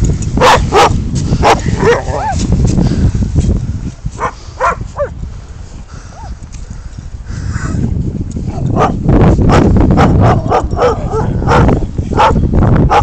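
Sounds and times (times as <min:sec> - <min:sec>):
large dog barking: 0:00.4 - 0:02.4, 0:04.2 - 0:05.2, 0:08.7 - 0:13.0.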